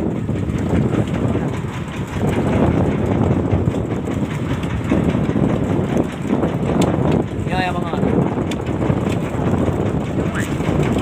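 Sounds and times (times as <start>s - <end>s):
boat engine rumbling: 0.0s - 11.0s.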